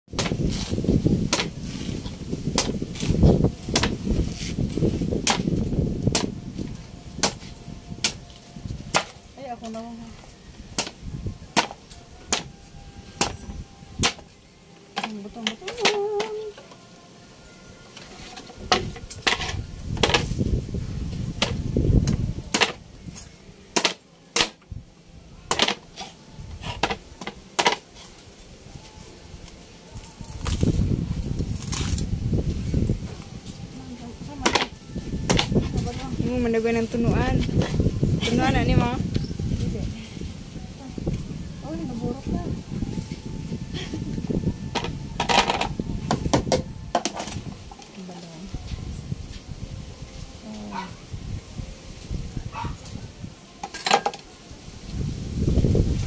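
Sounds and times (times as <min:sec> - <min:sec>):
cleaver chopping coconut husk: 0:00.1 - 0:01.8, 0:02.5 - 0:04.4, 0:05.2 - 0:06.4, 0:07.2 - 0:08.3, 0:08.9 - 0:09.2, 0:10.7 - 0:12.5, 0:14.0 - 0:14.3, 0:21.4 - 0:22.8, 0:23.7 - 0:24.6, 0:25.5 - 0:27.8, 0:31.6 - 0:32.0, 0:34.4 - 0:34.7, 0:35.3 - 0:35.7.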